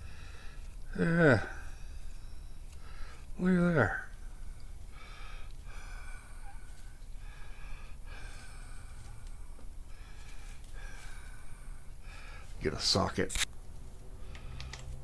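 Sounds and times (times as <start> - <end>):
man breathing through nose: 0.0 - 3.4, 4.0 - 12.6.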